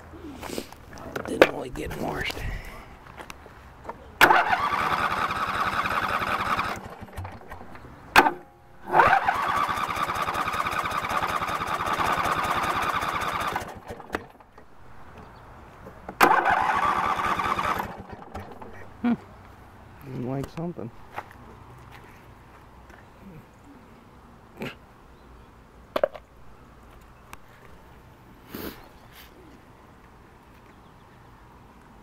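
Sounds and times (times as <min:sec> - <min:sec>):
engine starter cranking: 0:04.2 - 0:14.5, 0:16.2 - 0:18.8.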